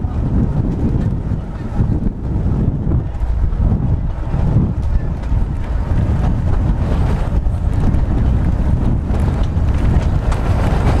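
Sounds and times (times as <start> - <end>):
electric tram running on track: 0.0 - 11.0
wind buffeting microphone: 0.0 - 11.0.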